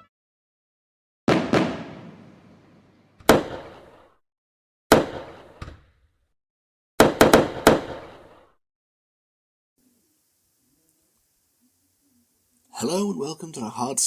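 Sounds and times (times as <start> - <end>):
firework crack: 1.3 - 4.2, 4.9 - 5.6, 7.0 - 8.6
fireworks bangs: 1.3 - 4.2, 4.9 - 5.6, 7.0 - 8.5.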